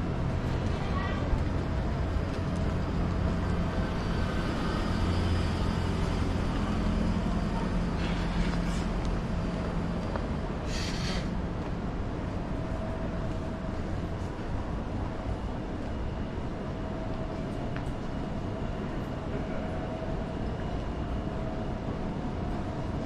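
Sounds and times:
vehicle engines humming: 0.0s - 15.3s.

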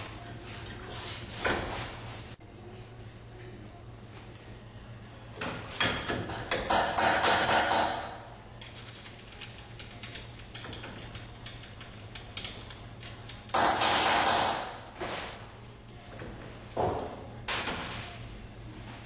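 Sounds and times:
metal clicks and knocks: 8.6s - 13.5s.

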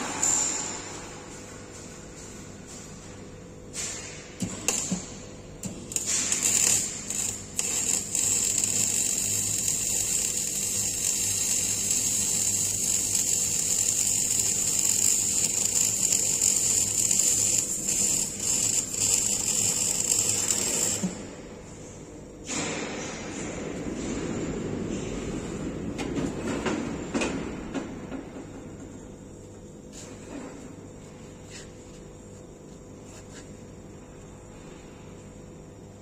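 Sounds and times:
welding arc crackling buzz: 0.0s - 21.8s.

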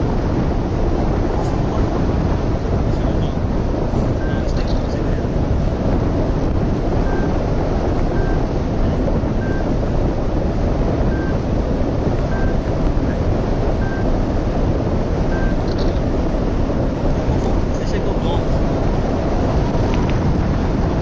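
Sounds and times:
wind rushing over microphone: 0.0s - 21.0s
short high beeps: 11.1s - 11.4s, 12.3s - 12.6s, 13.8s - 14.0s, 15.3s - 15.9s.

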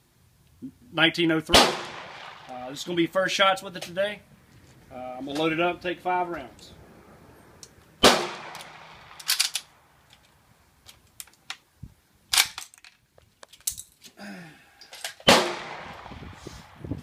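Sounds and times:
loud gunshot: 1.5s - 3.0s, 8.0s - 9.2s, 15.3s - 16.8s
rifle bolt clicks: 8.4s - 11.6s, 12.3s - 13.8s.

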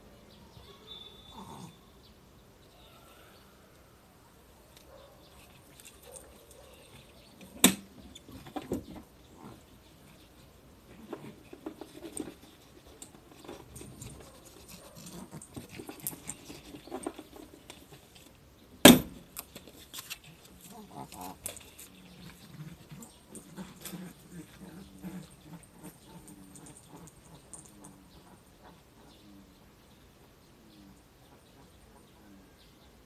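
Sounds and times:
dog sniffing and snuffling: 9.4s - 18.2s.

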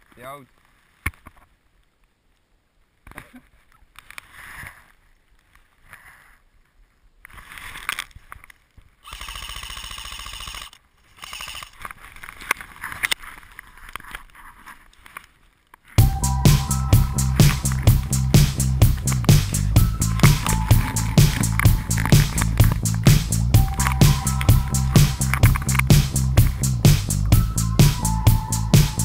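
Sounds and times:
airsoft rifle full-auto burst: 9.0s - 11.8s.

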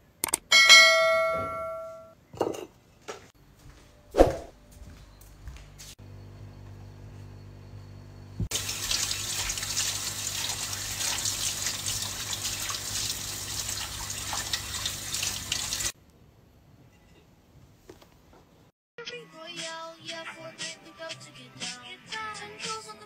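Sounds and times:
tap water running onto a plate: 8.5s - 15.9s.

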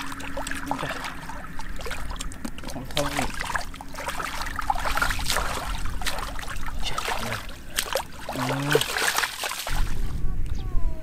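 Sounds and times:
water splashing: 0.0s - 10.1s.

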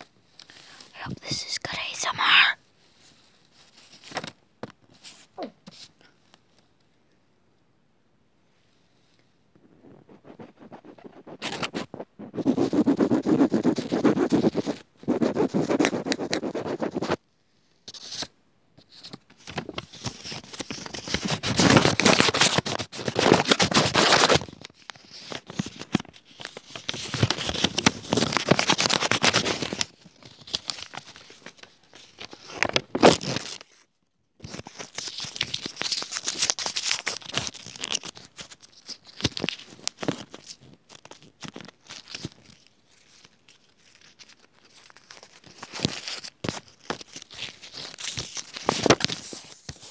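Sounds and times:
scratching and scraping by hand: 9.6s - 17.2s, 19.9s - 24.5s.

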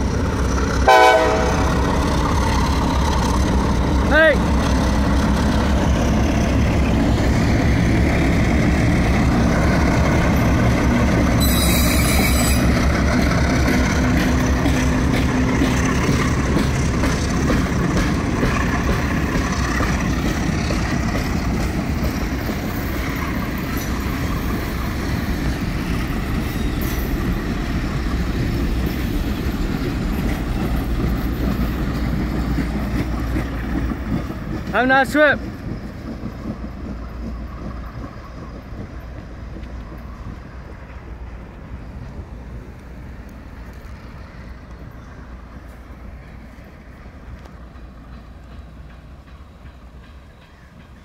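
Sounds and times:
diesel locomotives engine hum: 0.0s - 51.0s
steel wheels rumbling on rail: 0.0s - 51.0s
high squeal: 11.4s - 12.8s.

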